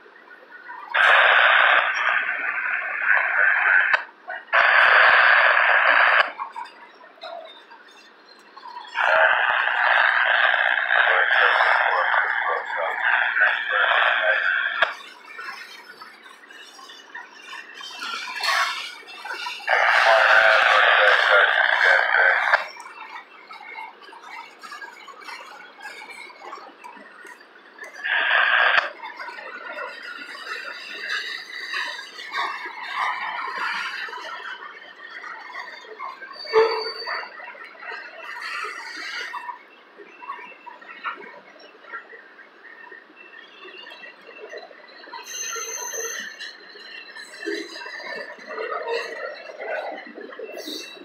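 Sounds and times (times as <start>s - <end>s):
radio static hiss: 0.0s - 51.0s
wheel squeaks and ticks: 14.3s - 42.0s, 43.2s - 49.6s
freight train rolling on rails: 43.2s - 51.0s
loud wheel screech: 45.2s - 47.3s.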